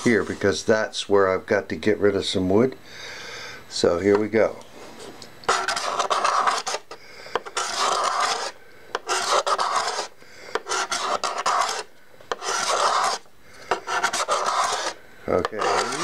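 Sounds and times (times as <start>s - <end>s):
card scraper scraping wood: 5.5s - 16.0s.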